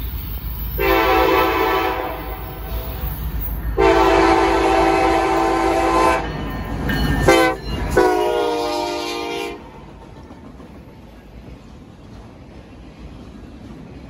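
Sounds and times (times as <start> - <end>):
train rolling past: 0.0 - 14.0
locomotive air horn: 0.8 - 3.1, 3.8 - 6.3, 7.2 - 9.7.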